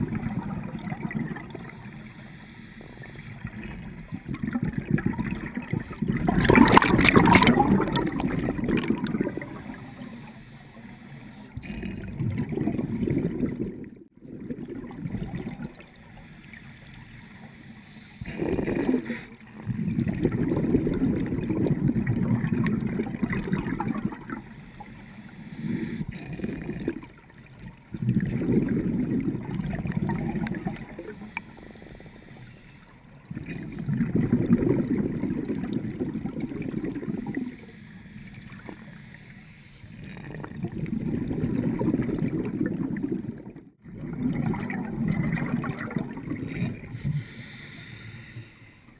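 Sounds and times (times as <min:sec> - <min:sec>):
underwater exhaled bubbles: 0:00.0 - 0:48.9.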